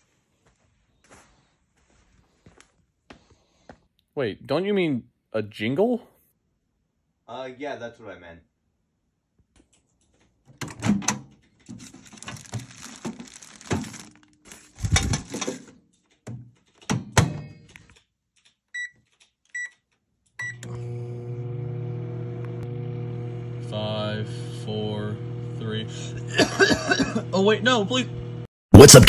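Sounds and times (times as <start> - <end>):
clattering and thunks: 14.8 - 17.7
microwave keypad beeps: 18.8 - 19.0, 19.6 - 19.8, 20.4 - 20.7
microwave humming: 20.4 - 28.5.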